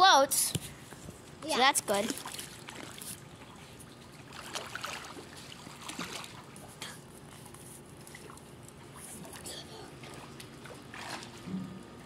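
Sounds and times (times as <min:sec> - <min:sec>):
pool water splashing: 0:01.6 - 0:07.0, 0:07.8 - 0:12.0.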